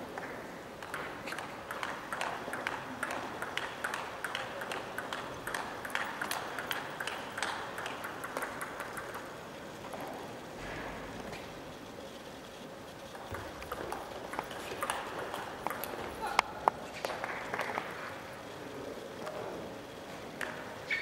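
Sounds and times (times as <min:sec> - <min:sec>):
table tennis ball clicking: 0:00.8 - 0:10.4, 0:13.1 - 0:18.1.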